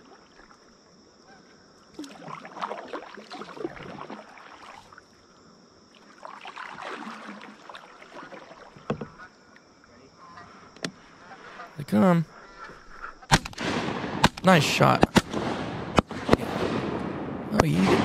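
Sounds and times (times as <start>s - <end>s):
paddle splashing in water: 1.9s - 5.2s, 5.9s - 9.3s.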